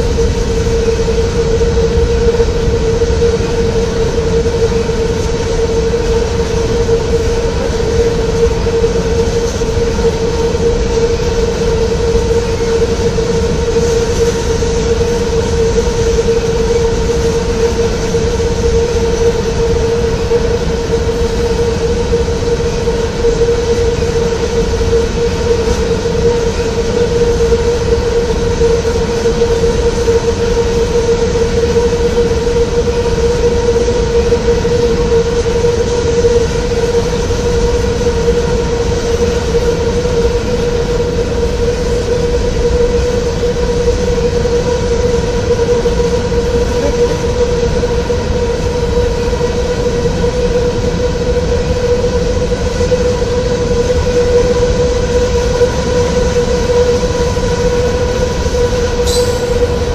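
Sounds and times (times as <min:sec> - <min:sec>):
steady tone: 0:59.1 - 0:59.9.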